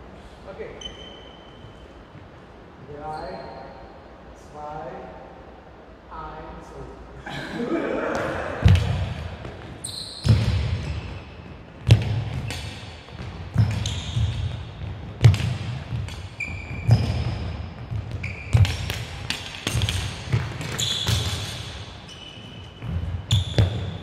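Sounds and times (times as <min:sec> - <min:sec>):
high shoe squeaks: 0:00.7 - 0:02.3, 0:02.9 - 0:03.8, 0:09.8 - 0:11.6, 0:13.6 - 0:15.2, 0:15.9 - 0:24.0.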